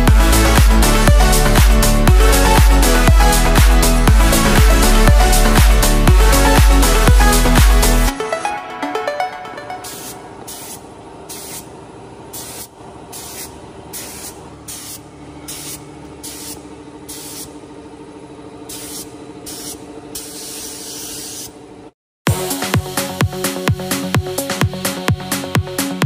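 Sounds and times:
steady hum: 0.0s - 21.9s
spray gun hissing: 9.8s - 11.7s, 12.3s - 17.6s, 18.7s - 21.6s.

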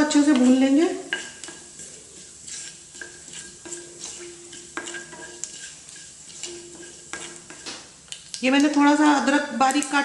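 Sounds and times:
spatula scraping metal pan: 0.0s - 7.9s
spices sizzling in oil: 0.0s - 10.0s.

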